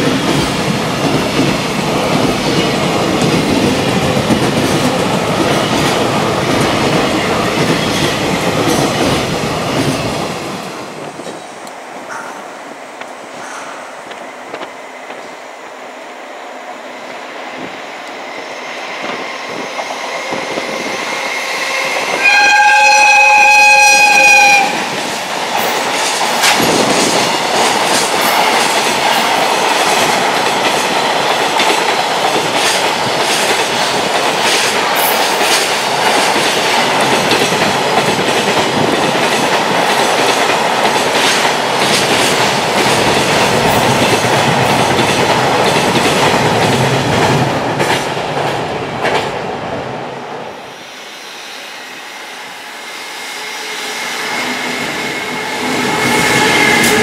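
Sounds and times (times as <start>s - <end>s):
train rumble: 0.0s - 50.8s, 52.0s - 57.0s
locomotive horn blast: 22.1s - 24.8s.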